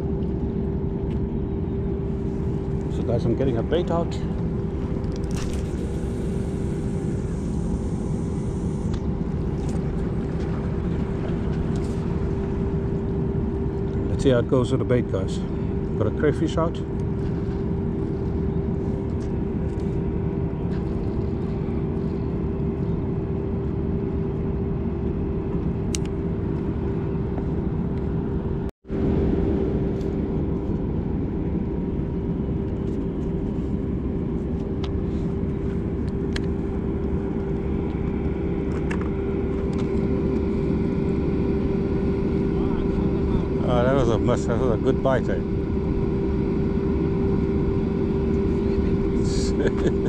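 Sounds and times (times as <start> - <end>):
low machinery drone: 0.0 - 50.0.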